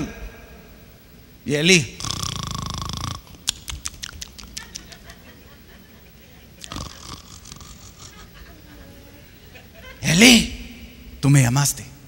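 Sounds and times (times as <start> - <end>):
man imitating snore: 2.0 - 3.4, 6.6 - 8.3
snort: 2.0 - 4.2, 6.6 - 8.3.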